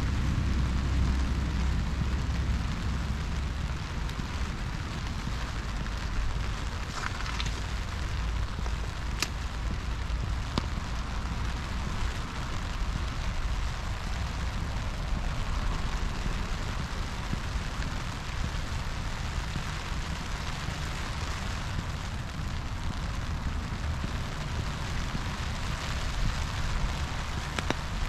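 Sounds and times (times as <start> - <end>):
low rumble: 0.0 - 28.0
steady rain falling: 0.0 - 28.0
sharp ticks: 9.1 - 9.8.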